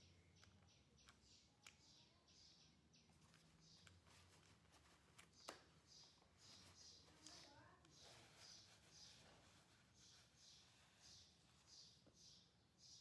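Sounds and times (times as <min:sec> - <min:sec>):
soft clicks: 0:00.0 - 0:08.2.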